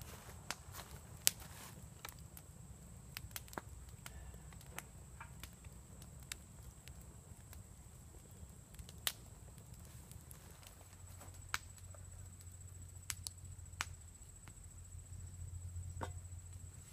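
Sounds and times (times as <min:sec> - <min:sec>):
campfire crackling and popping: 0:00.0 - 0:16.8.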